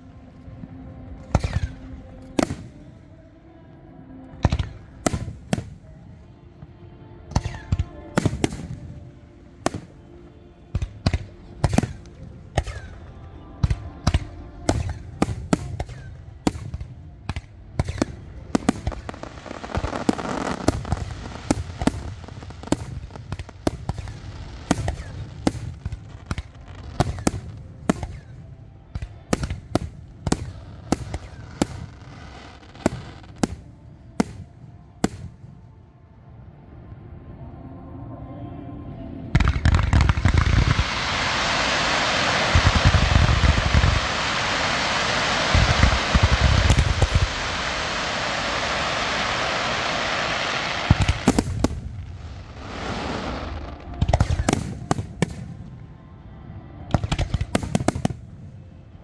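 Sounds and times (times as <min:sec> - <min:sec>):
fireworks crackling: 0:01.1 - 0:03.1, 0:04.4 - 0:06.2, 0:07.3 - 0:35.5, 0:39.4 - 0:55.9, 0:56.9 - 0:58.4
fireworks bangs: 0:10.7 - 0:35.4, 0:39.4 - 0:55.7.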